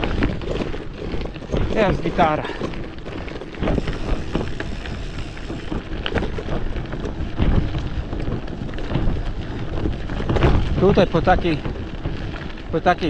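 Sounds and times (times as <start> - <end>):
bike tyres rumbling: 0.0 - 13.0
wind buffeting microphone: 0.0 - 13.0
knocks from bumps: 5.5 - 12.2.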